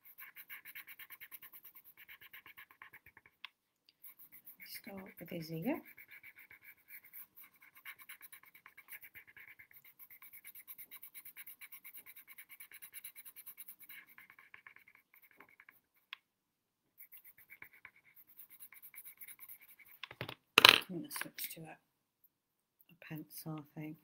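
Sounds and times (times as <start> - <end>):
pencil scratching on paper: 0.0 - 3.4, 4.0 - 16.2, 17.0 - 20.1.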